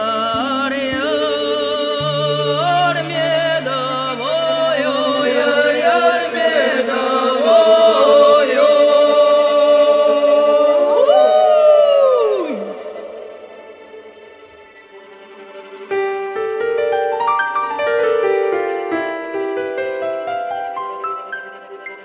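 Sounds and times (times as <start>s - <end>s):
voices singing folk chant: 0.0s - 13.9s.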